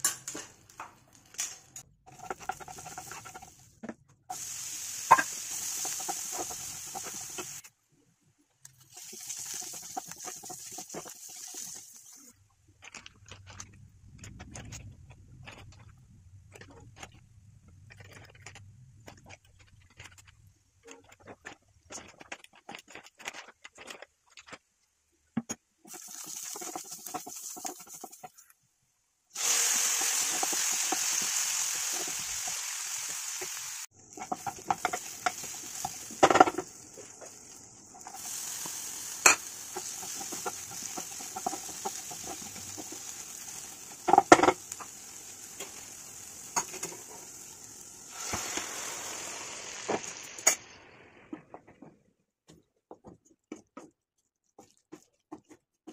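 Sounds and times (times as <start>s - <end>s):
masala sizzling in pan: 1.0s - 7.8s, 8.7s - 12.4s, 25.9s - 28.5s, 29.3s - 51.3s.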